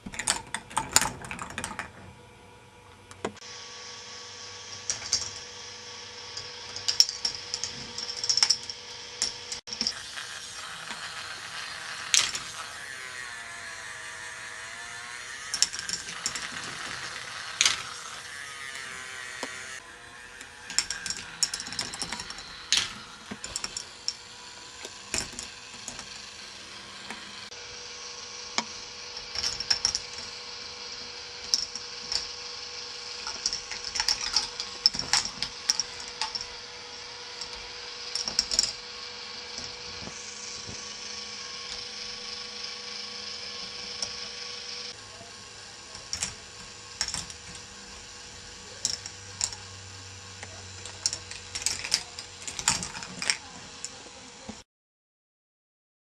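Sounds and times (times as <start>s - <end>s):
motor hum: 0.0s - 54.6s
plastic balls clicking on tracks: 0.1s - 2.1s, 4.7s - 5.4s, 6.4s - 13.3s, 14.1s - 19.8s, 20.4s - 27.3s, 28.6s - 36.7s, 37.3s - 45.0s, 45.9s - 49.7s, 50.4s - 54.6s.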